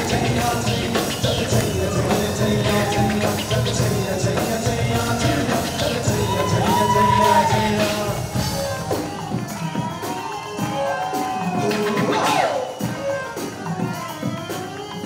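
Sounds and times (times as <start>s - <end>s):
man singing lead: 0.0s - 9.4s, 11.4s - 12.8s
beatboxing: 0.0s - 15.0s.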